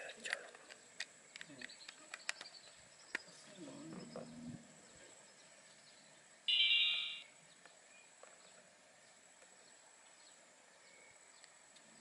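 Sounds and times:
electronic beep: 6.5s - 7.3s.

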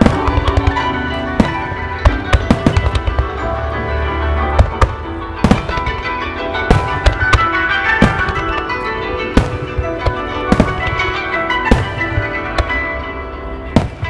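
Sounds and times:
fireworks bursting: 0.0s - 3.7s, 4.5s - 13.1s, 13.8s - 14.0s
music over loudspeakers: 0.0s - 14.0s.

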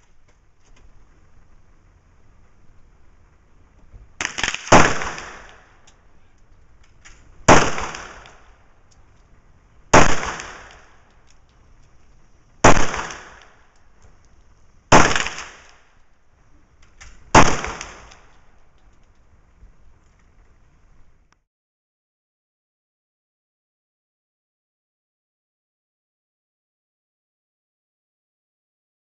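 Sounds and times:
pistol shots with ringing echo: 4.2s - 5.9s, 7.4s - 8.6s, 9.9s - 11.1s, 12.6s - 13.7s, 14.9s - 15.9s, 17.0s - 18.4s.

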